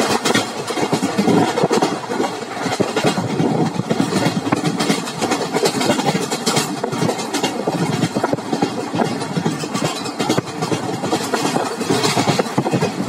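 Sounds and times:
rattling and clatter: 0.0s - 13.0s
train wheels on rails: 0.0s - 13.0s.

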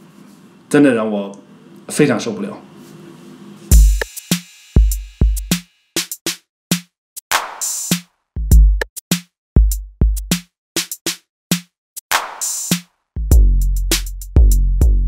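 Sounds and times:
electronic drum machine beat: 3.7s - 15.0s.

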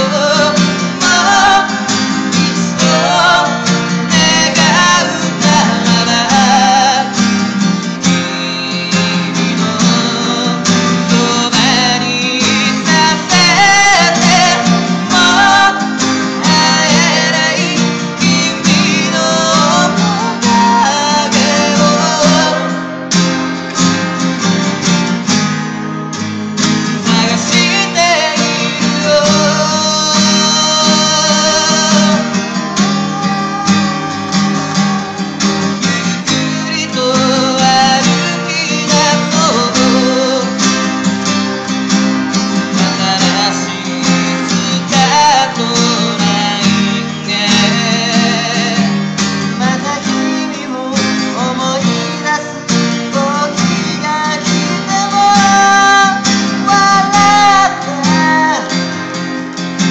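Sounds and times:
acoustic guitars strumming: 0.0s - 59.9s.

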